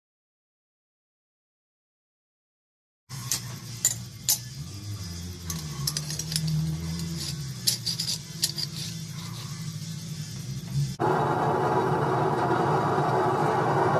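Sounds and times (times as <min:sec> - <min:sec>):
metal bolt clinking and rattling: 0:05.4 - 0:09.3.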